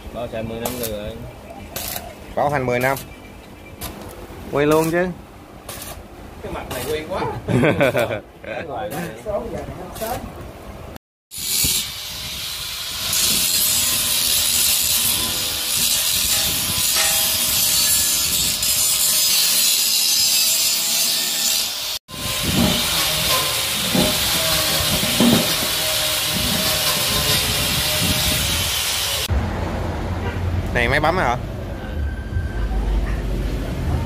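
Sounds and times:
angle grinder grinding metal: 11.3 - 29.3.

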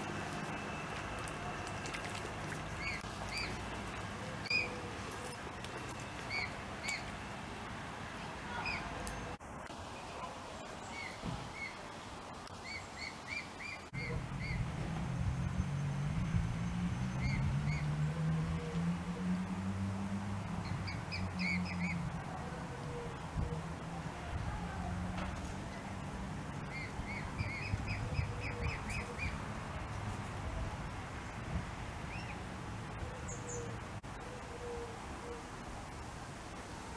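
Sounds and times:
cygnets peeping: 1.0 - 3.7, 4.4 - 5.0, 26.7 - 29.4.

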